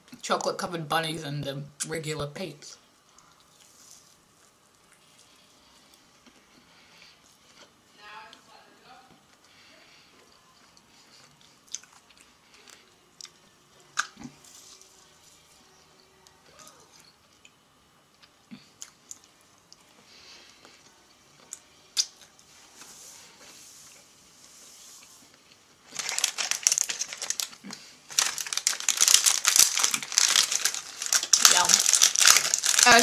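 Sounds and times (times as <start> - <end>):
plastic packaging crinkling: 25.8 - 33.0.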